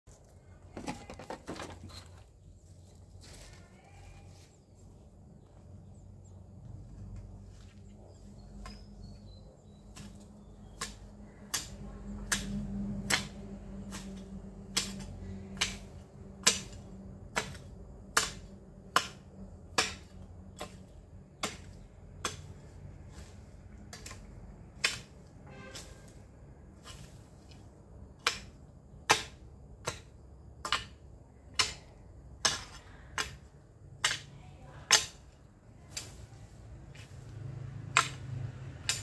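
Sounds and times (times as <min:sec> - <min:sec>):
garden hoe chopping soil: 0:08.4 - 0:26.2, 0:26.8 - 0:39.0.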